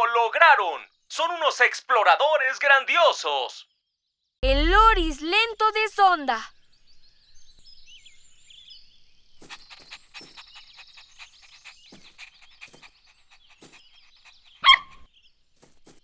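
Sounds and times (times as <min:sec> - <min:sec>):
faint high chirping: 0:06.2 - 0:16.0
cartoon puppy barking: 0:14.6 - 0:15.1.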